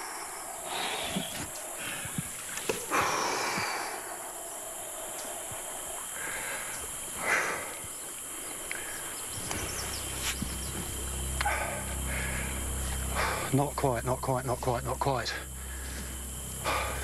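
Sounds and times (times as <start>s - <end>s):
insect chorus: 0.0s - 17.0s
low hum: 8.7s - 17.0s.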